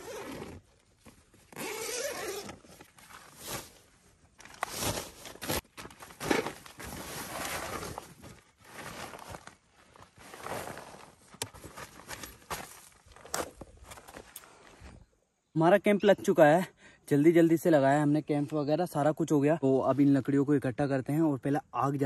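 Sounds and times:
tent fabric and bags rustling: 0:00.0 - 0:15.1.

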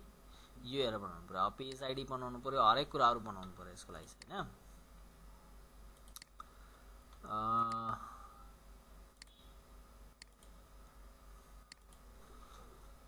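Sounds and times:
computer mouse clicks: 0:06.0 - 0:06.5, 0:09.2 - 0:09.5, 0:10.2 - 0:10.6, 0:11.7 - 0:12.1
man humming: 0:07.2 - 0:08.4.

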